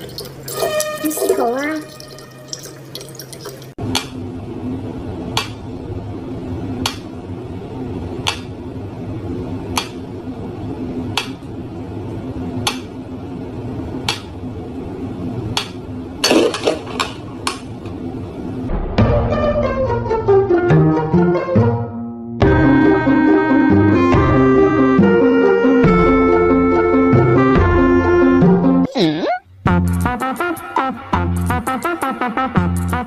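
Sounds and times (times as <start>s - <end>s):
low room hum: 0.0s - 18.7s.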